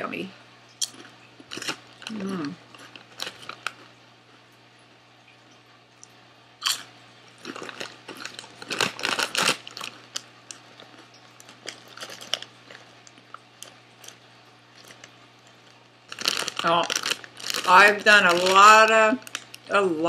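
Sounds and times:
chip crunching: 0:00.8 - 0:04.0, 0:06.6 - 0:19.7.

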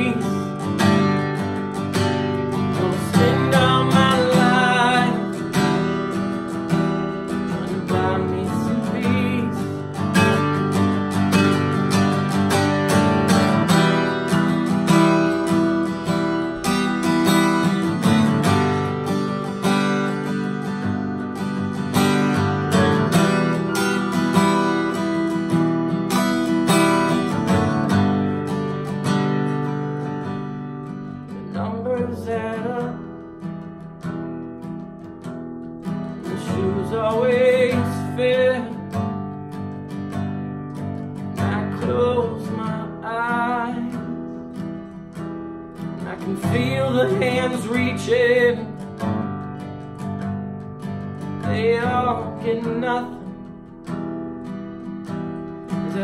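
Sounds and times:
man singing: 0:00.0 - 0:01.6, 0:02.2 - 0:11.8, 0:31.3 - 0:33.5, 0:36.0 - 0:39.2, 0:40.8 - 0:44.8, 0:45.8 - 0:49.2, 0:51.2 - 0:53.6, 0:55.7 - 0:56.0
acoustic guitar strumming: 0:00.0 - 0:56.0.

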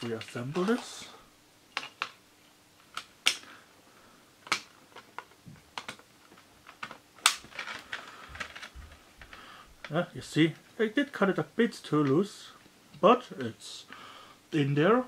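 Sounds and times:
plastic case clicks and snaps: 0:02.9 - 0:03.5, 0:04.4 - 0:06.0, 0:06.7 - 0:07.9.

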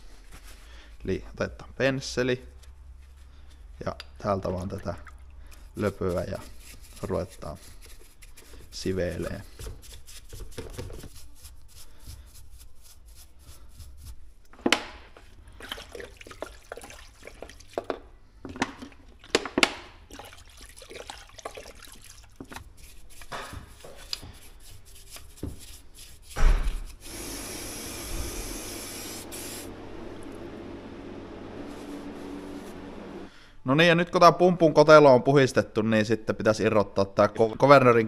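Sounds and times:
brush scrubbing metal: 0:05.5 - 0:14.5, 0:20.1 - 0:29.8, 0:31.3 - 0:33.2
liquid splashing and dripping: 0:15.5 - 0:22.7
loud spray hiss: 0:27.0 - 0:29.8.

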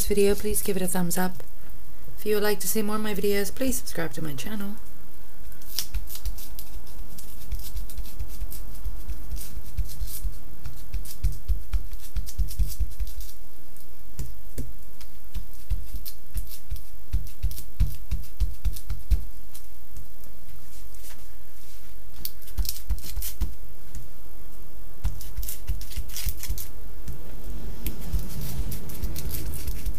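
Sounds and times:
ink pad dabbing on foil: 0:05.7 - 0:23.6.

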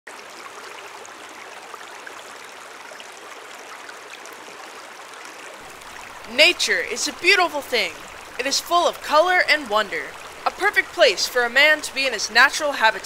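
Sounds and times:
creek flowing over pebbles: 0:00.1 - 0:13.0.

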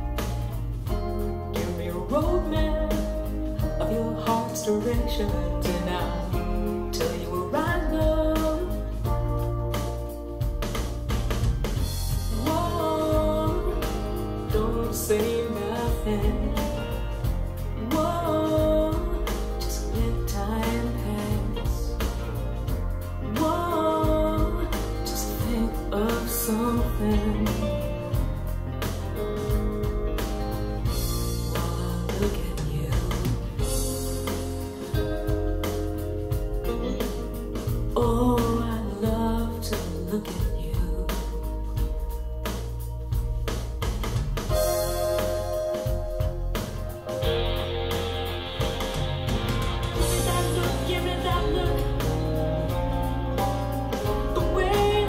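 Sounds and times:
band playing through speakers: 0:00.0 - 0:55.0
song with drums and bass: 0:00.0 - 0:55.0
woman singing: 0:01.4 - 0:09.3, 0:12.3 - 0:22.3, 0:23.2 - 0:28.3, 0:31.4 - 0:35.3, 0:37.9 - 0:42.0, 0:50.0 - 0:55.0.

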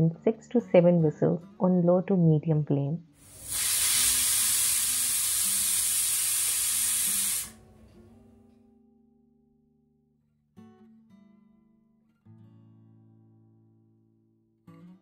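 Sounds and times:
pressure cooker steam hissing: 0:03.2 - 0:07.6.

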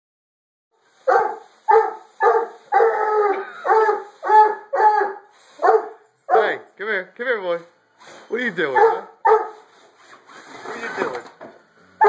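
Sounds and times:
dog barking: 0:01.1 - 0:06.6, 0:08.7 - 0:09.6.

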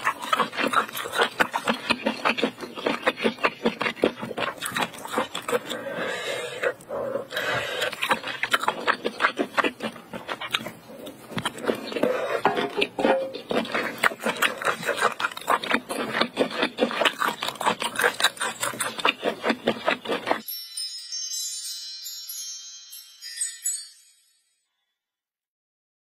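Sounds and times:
wet chewing: 0:00.0 - 0:20.4
jingle of chimes and bells: 0:20.4 - 0:25.0.

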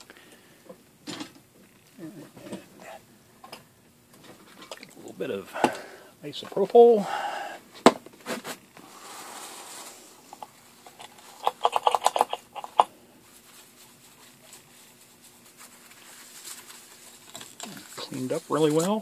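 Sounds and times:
tissue wipe rustling: 0:08.8 - 0:10.2, 0:13.2 - 0:19.0.

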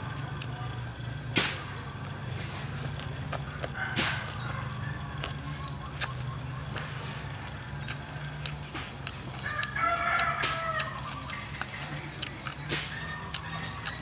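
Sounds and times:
rooster crowing: 0:03.7 - 0:05.0, 0:09.4 - 0:11.2.

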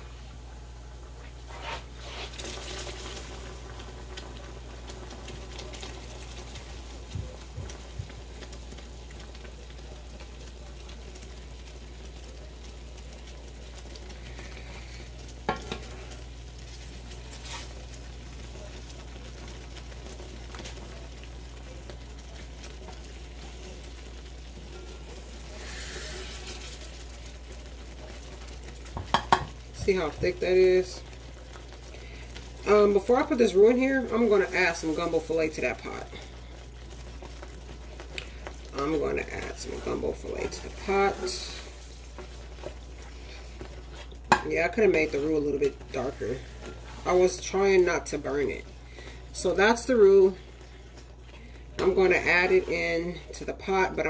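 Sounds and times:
roux sizzling in a pan: 0:00.0 - 0:54.0
utensil knocking against pan: 0:29.0 - 0:29.5.

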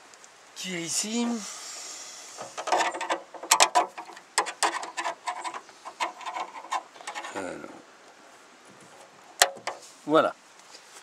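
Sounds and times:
screwdriver scraping metal latch: 0:02.4 - 0:07.4.

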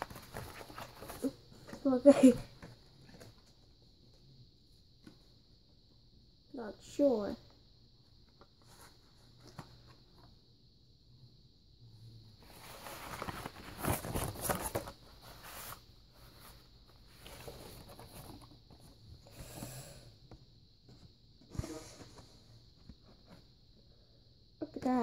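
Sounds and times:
package rustling and crinkling: 0:00.0 - 0:01.9, 0:12.5 - 0:15.7.

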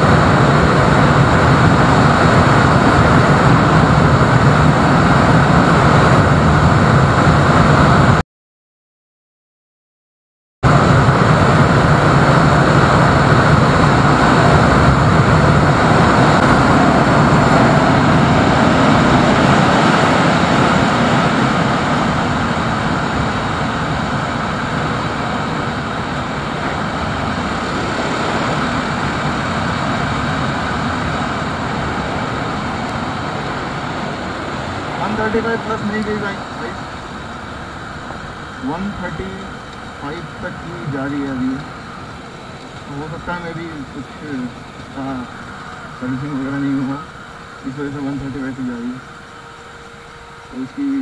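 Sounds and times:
wind rush over microphone: 0:00.0 - 0:08.2, 0:10.6 - 0:51.0
motorcycle engine running: 0:10.7 - 0:51.0.

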